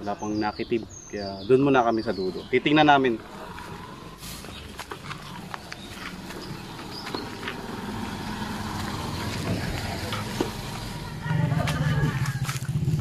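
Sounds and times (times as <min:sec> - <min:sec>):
vehicle engine running: 0:03.1 - 0:13.0.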